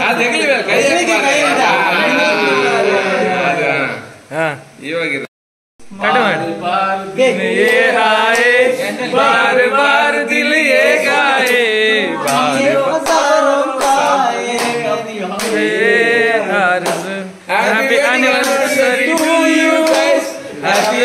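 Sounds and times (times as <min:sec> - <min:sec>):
group singing in chorus: 0:06.0 - 0:21.0.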